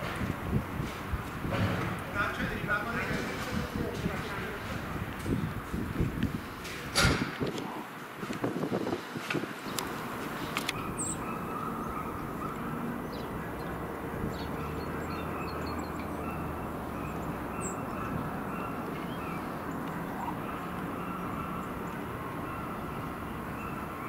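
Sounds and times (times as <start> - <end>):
bird chirping: 9.6 - 24.0
distant diesel engine drone: 9.6 - 24.0.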